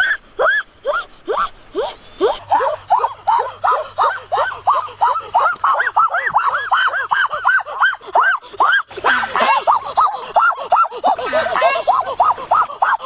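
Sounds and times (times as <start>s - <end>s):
goose honking: 8.7s - 9.9s, 11.1s - 13.0s.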